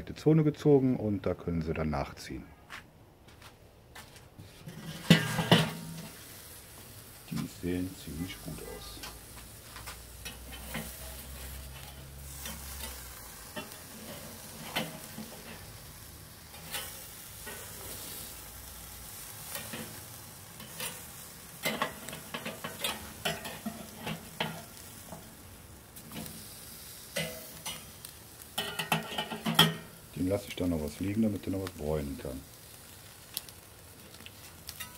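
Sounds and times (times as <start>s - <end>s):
metal spatula scraping grill: 4.4s - 31.6s, 34.2s - 34.9s
burger patties sizzling on grill: 4.4s - 34.9s.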